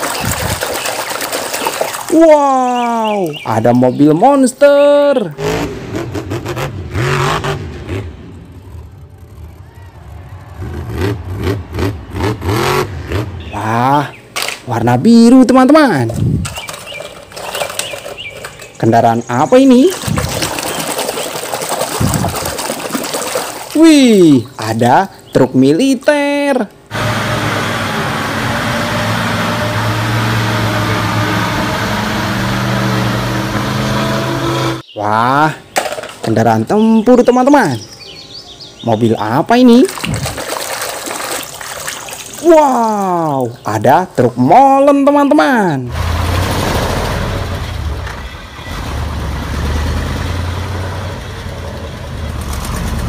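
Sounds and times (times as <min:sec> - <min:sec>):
water rushing and churning: 0:00.0 - 0:03.6, 0:15.9 - 0:24.5, 0:39.7 - 0:43.5
truck engine running: 0:05.4 - 0:13.6, 0:26.8 - 0:34.8, 0:46.0 - 0:53.0.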